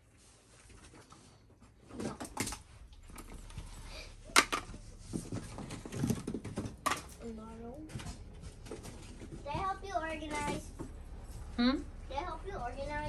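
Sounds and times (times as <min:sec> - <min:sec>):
household objects knocking and clattering: 0:04.3 - 0:07.2.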